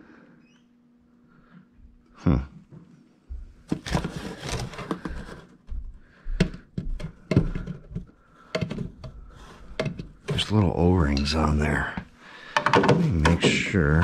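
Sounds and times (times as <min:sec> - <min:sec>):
cardboard box rustling: 0:03.7 - 0:05.4
plastic part clicking and knocking: 0:12.6 - 0:13.5.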